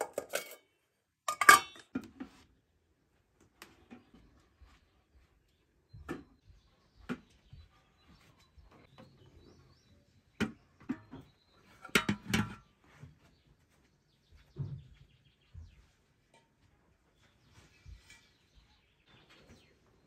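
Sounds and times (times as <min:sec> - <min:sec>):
metal pot lid knocks and clinks: 0:00.0 - 0:00.6, 0:01.3 - 0:02.1, 0:11.8 - 0:12.6.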